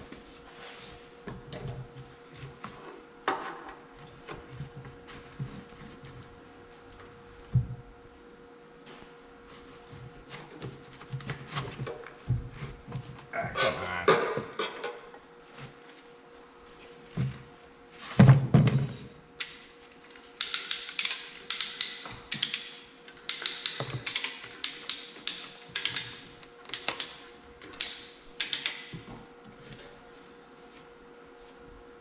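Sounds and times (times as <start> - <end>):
wrench clicking on bolts: 20.4 - 28.8.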